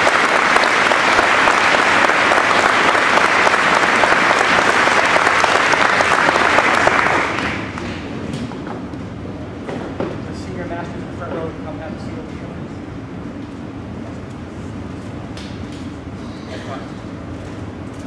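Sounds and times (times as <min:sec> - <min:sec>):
audience applauding: 0:00.0 - 0:08.0.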